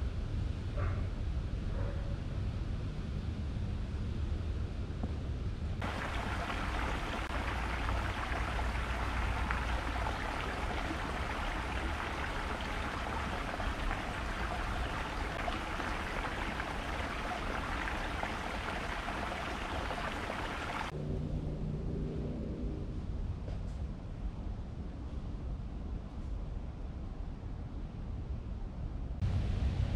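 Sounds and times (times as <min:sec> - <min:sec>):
creek water over rocks: 0:05.8 - 0:20.9.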